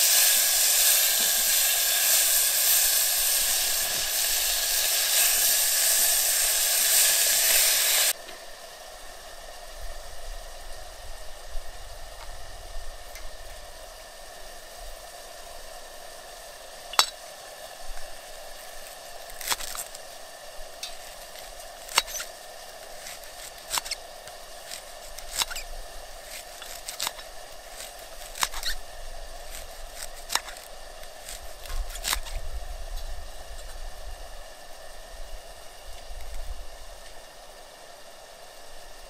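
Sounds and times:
knife clicking on metal plate: 16.9s - 17.2s
knife cutting leek: 19.2s - 20.0s, 20.8s - 28.8s, 29.5s - 32.4s.

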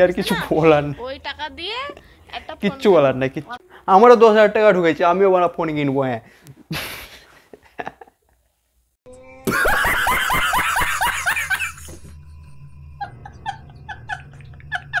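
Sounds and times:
man laughing hard: 6.7s - 8.2s, 9.4s - 12.1s, 13.0s - 15.0s.

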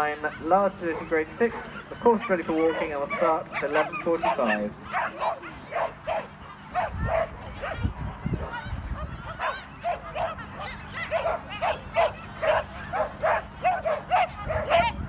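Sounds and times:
dog yapping: 9.4s - 15.0s.

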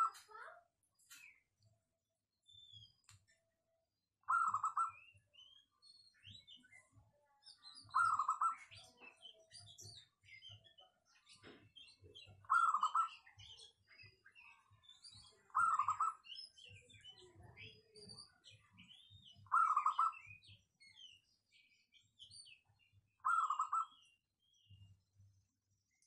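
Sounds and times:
small birds chirping: 0.0s - 26.0s.

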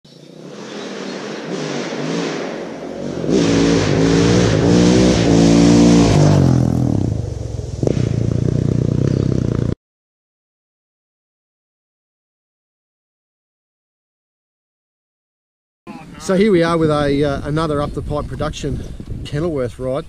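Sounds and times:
dirt bike engine revving past: 0.1s - 9.8s
sharp crack: 0.4s - 8.6s.

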